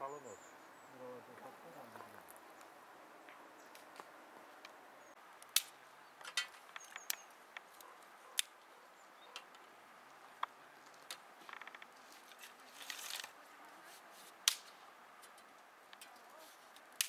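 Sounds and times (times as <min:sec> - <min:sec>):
faint outdoor ambience: 0:00.0 - 0:17.0
dry twigs snapping in fire: 0:05.4 - 0:08.6, 0:09.4 - 0:13.4, 0:14.4 - 0:17.0.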